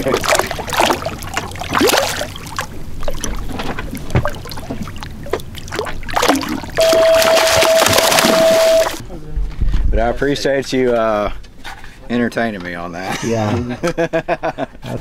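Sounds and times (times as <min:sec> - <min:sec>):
shark thrashing water splashes: 0:00.0 - 0:09.0.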